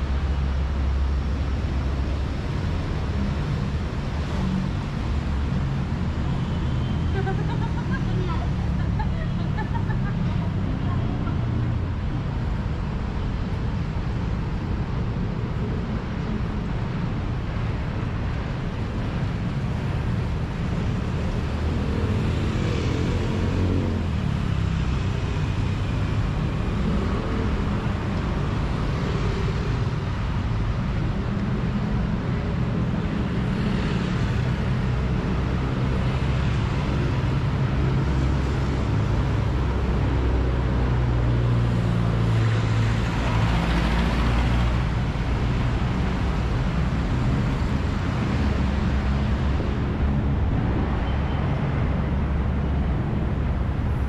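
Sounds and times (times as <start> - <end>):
traffic rumble: 0.0 - 54.0
vehicles passing close by: 0.0 - 54.0.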